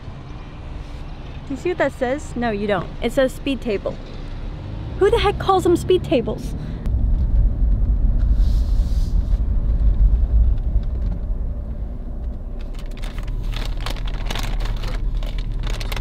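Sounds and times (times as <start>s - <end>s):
road rumble inside car: 0.0s - 16.0s.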